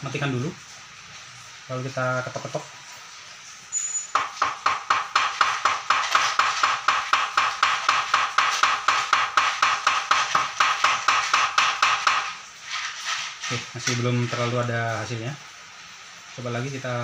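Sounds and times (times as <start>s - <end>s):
rapid knocks on metal rail: 4.2s - 12.4s.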